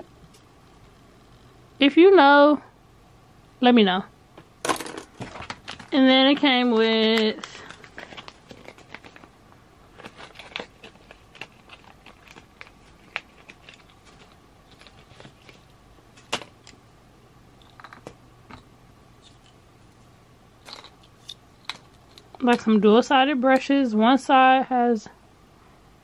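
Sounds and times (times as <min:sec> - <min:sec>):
plastic packaging crinkling: 0:05.1 - 0:16.8.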